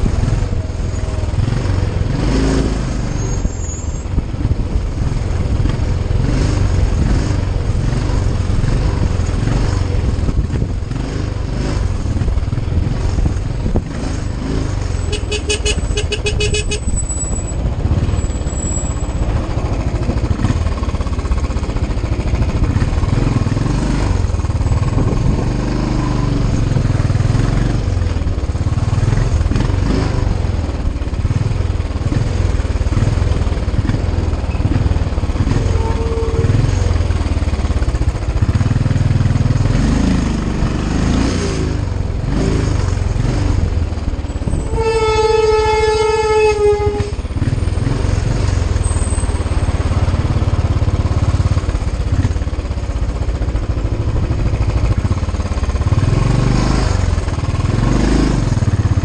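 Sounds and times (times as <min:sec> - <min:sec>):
motorcycle engine rumble: 0:00.0 - 0:59.0.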